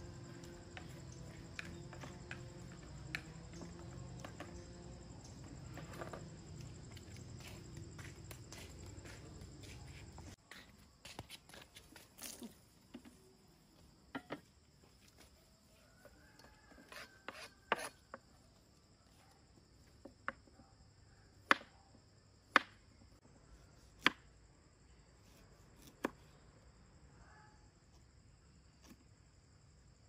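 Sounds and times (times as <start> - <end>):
high insect drone: 0.0 - 18.9.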